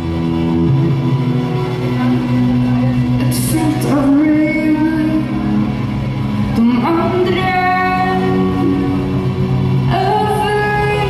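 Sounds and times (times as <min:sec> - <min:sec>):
electric guitar and band: 0:00.0 - 0:11.0
woman singing: 0:03.2 - 0:05.8, 0:06.6 - 0:09.2, 0:09.8 - 0:11.0.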